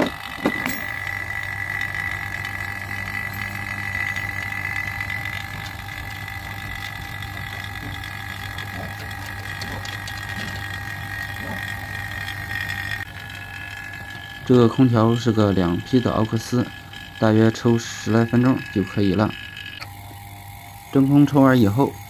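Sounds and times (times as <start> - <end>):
vacuum pump humming and whining: 0.0 - 22.0.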